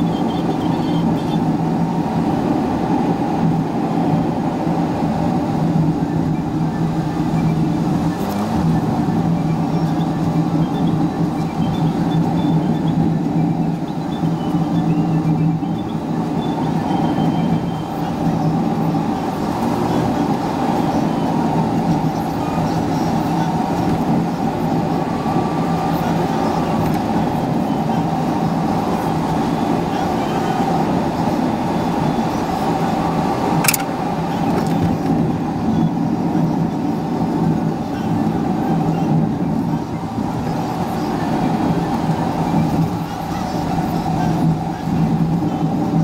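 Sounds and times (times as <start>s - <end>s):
car engine and road noise: 0.0s - 46.0s
sharp click: 33.6s - 34.0s.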